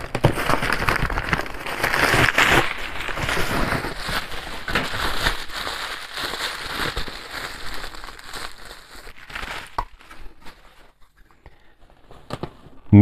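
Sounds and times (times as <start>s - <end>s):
bubble wrap crackling: 0.0s - 12.8s.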